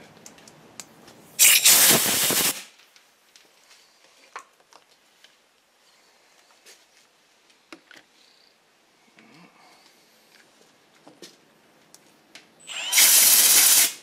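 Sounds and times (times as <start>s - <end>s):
air blast: 1.4s - 2.7s.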